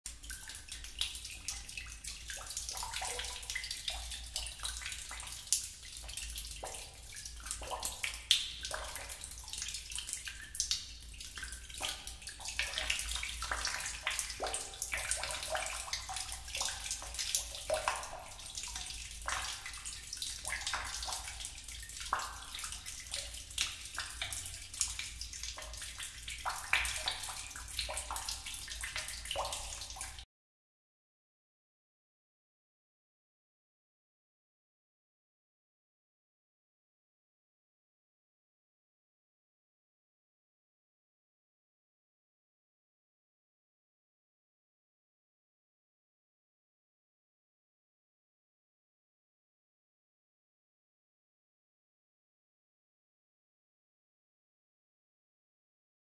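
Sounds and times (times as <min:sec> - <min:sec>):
water dripping in cave: 0:00.1 - 0:30.3.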